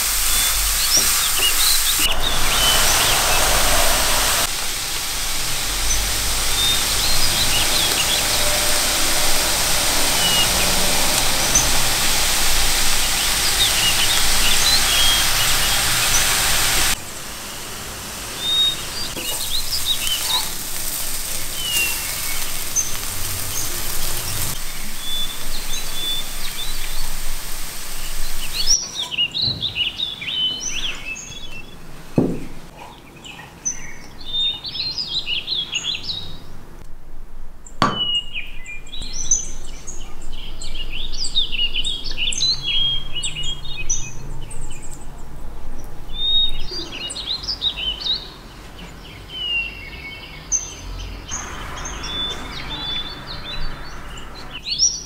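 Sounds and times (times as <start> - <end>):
steady hiss: 0.0 - 29.1, 51.3 - 54.6
songbirds chirping and singing: 5.8 - 16.7, 18.4 - 31.8.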